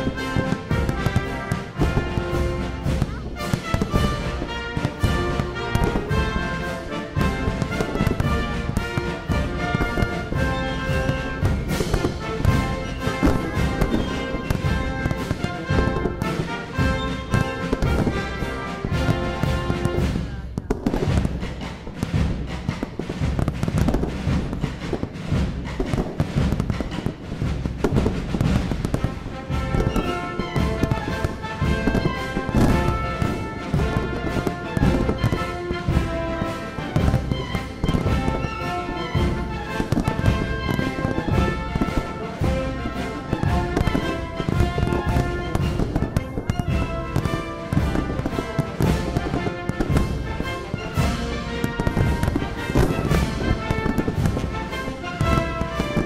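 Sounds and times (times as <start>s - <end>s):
fireworks bangs and crackles: 0.0s - 56.0s
fireworks deep booms: 0.0s - 56.0s.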